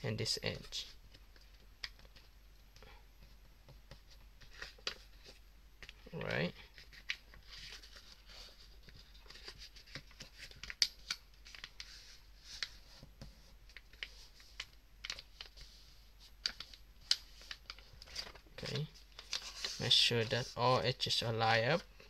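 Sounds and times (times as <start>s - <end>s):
paper being folded: 13.7s - 20.8s.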